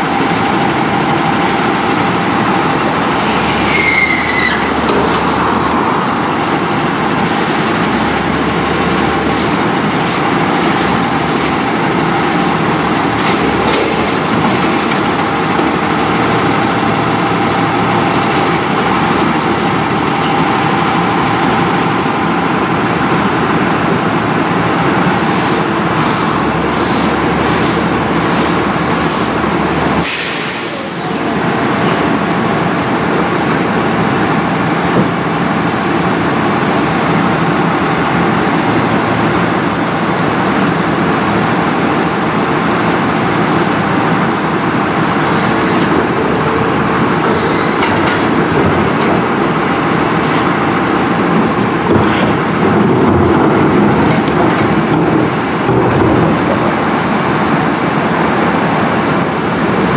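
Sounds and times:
garbage truck diesel engine running: 0:00.0 - 0:59.9
air brake hiss: 0:30.0 - 0:31.2.

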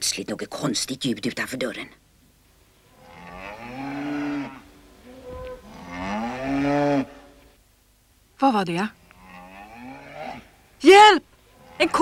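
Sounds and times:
cow moos: 0:02.9 - 0:07.4, 0:09.2 - 0:10.5.

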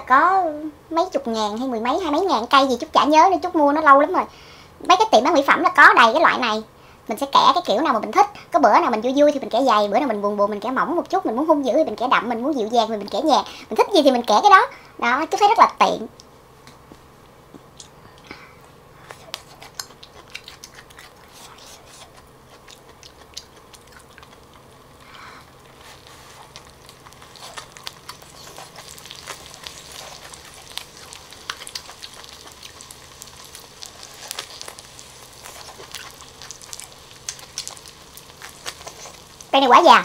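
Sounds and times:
crisp chewing: 0:19.0 - 0:39.6
food crackling on grill pan: 0:22.2 - 0:40.0.

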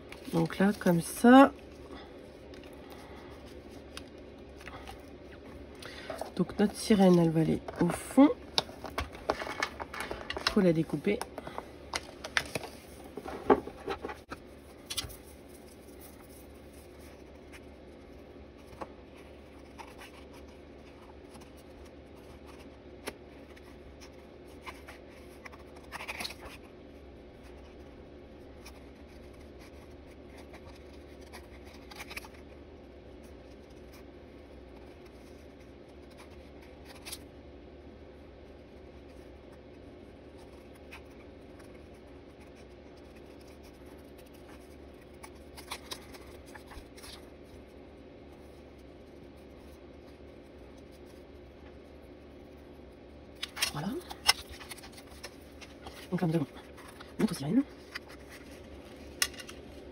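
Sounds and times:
steady low hum: 0:00.0 - 0:59.9
paper rustling: 0:05.9 - 0:17.7, 0:40.4 - 0:47.7, 0:53.4 - 0:59.9
scissors snipping paper: 0:42.4 - 0:47.2.

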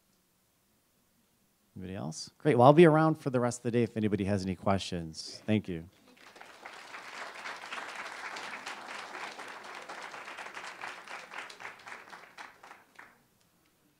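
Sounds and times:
audience applauding: 0:06.0 - 0:13.2.

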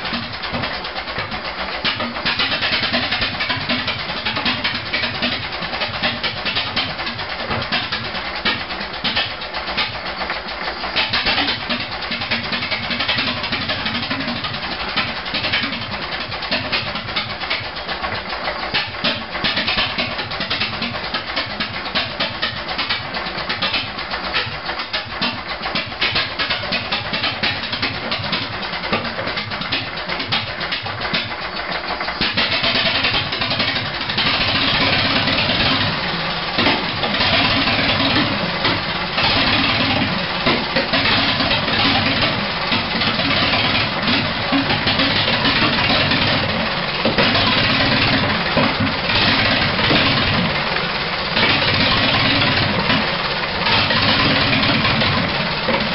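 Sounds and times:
stationary engine running: 0:00.0 - 0:55.9.

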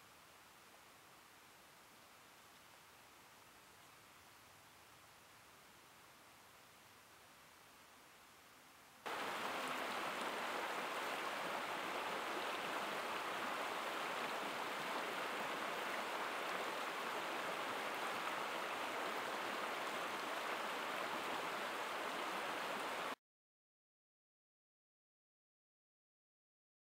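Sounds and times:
stream water rushing: 0:09.0 - 0:23.2.

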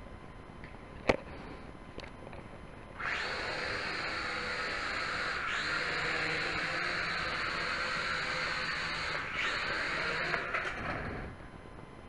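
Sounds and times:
toy drone motors buzzing: 0:03.0 - 0:11.4.

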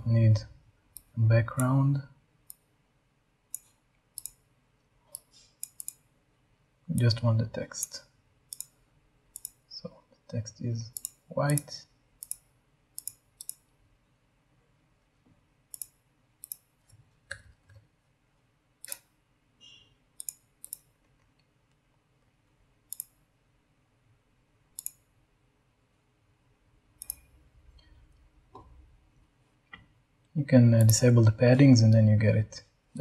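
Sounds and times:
faint room hiss: 0:00.0 - 0:33.0
computer mouse clicking: 0:00.9 - 0:01.7, 0:03.5 - 0:04.4, 0:05.1 - 0:06.0, 0:07.8 - 0:09.6, 0:10.9 - 0:13.8, 0:15.7 - 0:16.7, 0:18.8 - 0:19.1, 0:20.2 - 0:21.8, 0:22.9 - 0:23.2, 0:24.8 - 0:25.1, 0:27.0 - 0:28.0, 0:30.8 - 0:31.1.

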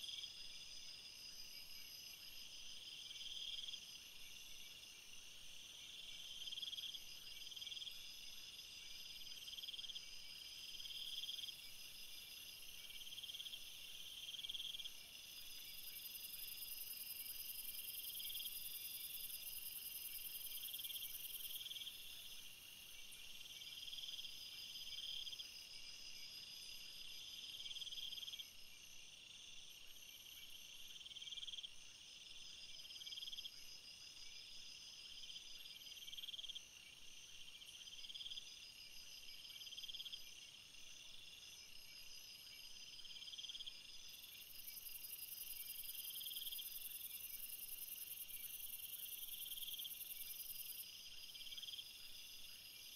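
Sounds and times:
insects chirping trills: 0:00.0 - 0:52.9.

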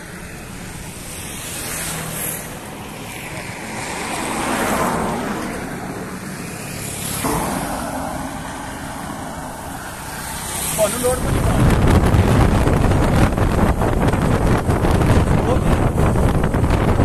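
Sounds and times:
wind noise on microphone: 0:00.0 - 0:17.0
vehicle passing: 0:00.6 - 0:14.2.

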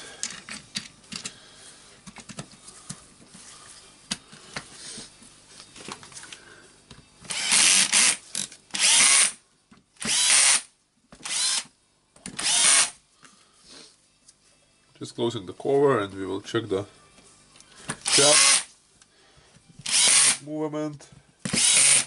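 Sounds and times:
plastic parts clicking and knocking: 0:00.2 - 0:01.4
cordless drill running in bursts: 0:07.3 - 0:08.2, 0:08.8 - 0:09.4, 0:10.0 - 0:10.6, 0:11.2 - 0:11.6, 0:12.4 - 0:12.9, 0:18.0 - 0:18.7, 0:19.8 - 0:20.4, 0:21.5 - 0:22.0.

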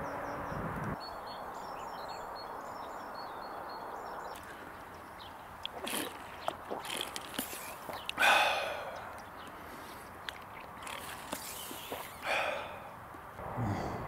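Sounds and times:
gulping and swallowing: 0:05.6 - 0:09.2
breathy exhale: 0:08.2 - 0:10.1, 0:12.2 - 0:14.0.

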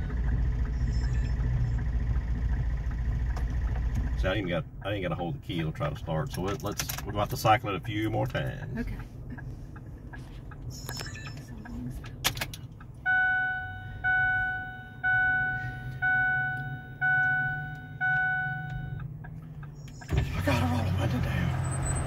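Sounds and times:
low steady hum: 0:00.0 - 0:20.9
dashboard warning chime: 0:07.7 - 0:12.0, 0:13.0 - 0:20.8.

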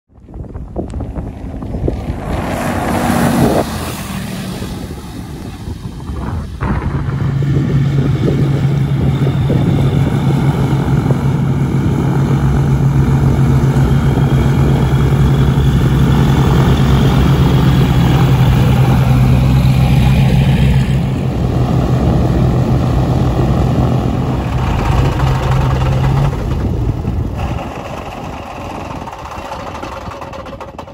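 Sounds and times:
strong low hum: 0:00.1 - 0:30.8
propeller plane engines droning: 0:00.2 - 0:30.9.

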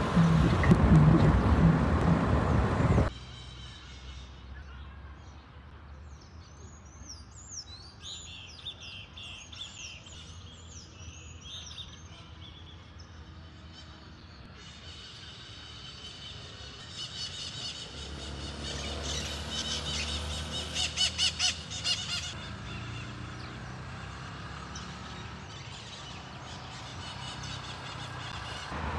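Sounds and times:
low background rumble: 0:00.0 - 0:03.1
birds chirping: 0:00.0 - 0:28.9.

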